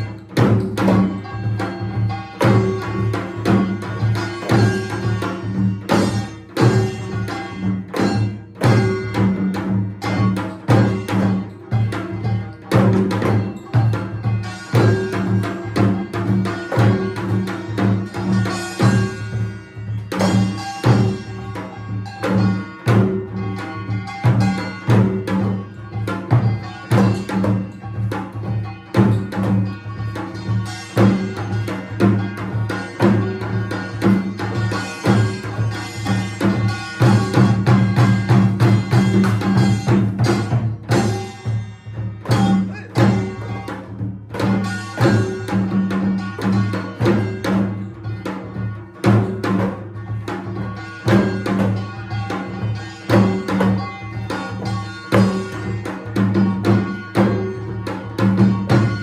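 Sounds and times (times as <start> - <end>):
drum strikes: 0.0 - 59.0
steady held tones: 13.4 - 49.0.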